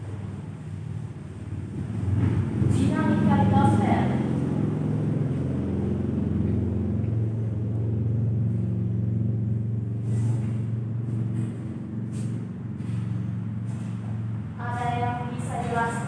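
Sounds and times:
low mechanical rumble: 0.0s - 16.0s.

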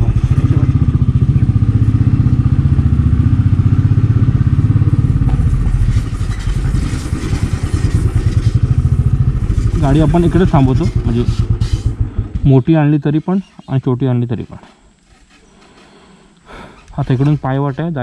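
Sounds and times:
motorcycle engine running: 0.0s - 13.1s.

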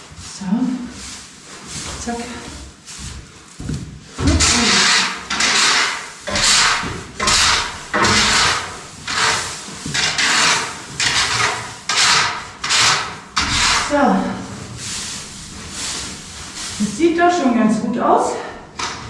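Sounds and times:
tool scraping straw bedding: 4.2s - 14.0s.

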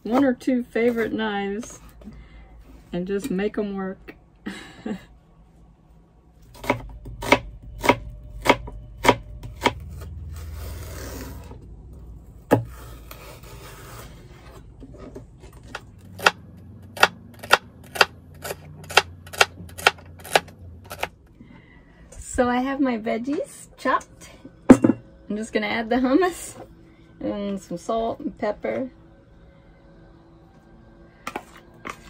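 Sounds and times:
knife chopping on cutting board: 6.6s - 9.8s.

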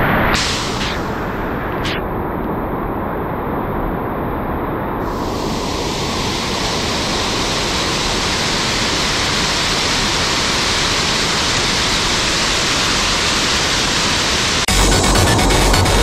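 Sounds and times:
mountain stream rushing: 5.0s - 14.7s.

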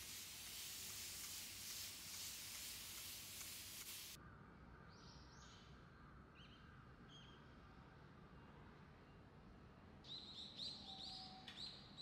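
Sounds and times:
spray bottle hissing: 0.0s - 4.2s
faint bird chirps: 10.1s - 12.0s.

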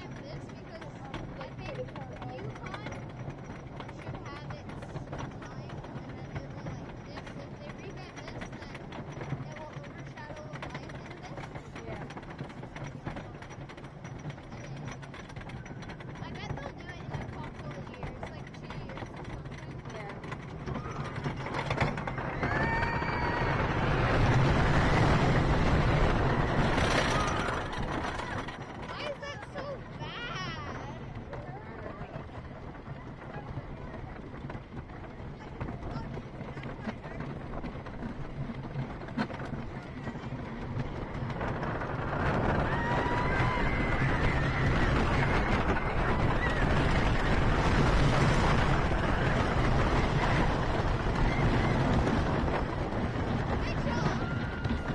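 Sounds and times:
roller coaster wheels on track: 0.0s - 54.9s
wind on microphone: 20.7s - 28.9s, 34.7s - 54.9s.

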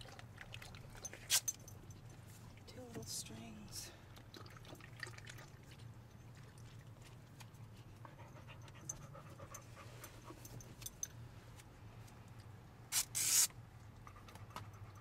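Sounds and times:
low steady hum: 0.0s - 12.9s
dog panting softly: 7.8s - 10.6s
adhesive tape ripping off roll: 12.9s - 13.5s.

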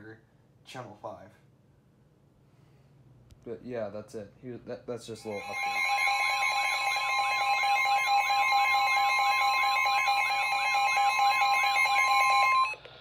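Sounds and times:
warbling siren: 5.2s - 12.8s.

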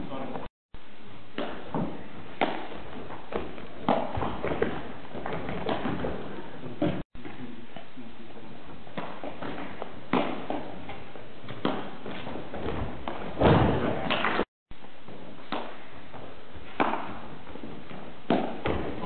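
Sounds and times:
feet landing on wooden floor: 11.5s - 14.4s
footbag kick thuds: 12.7s - 14.0s.

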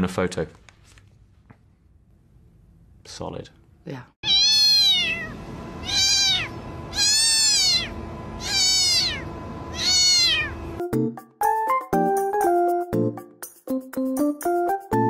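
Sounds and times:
cat meowing: 4.2s - 10.6s
keyboard music: 10.8s - 15.0s.

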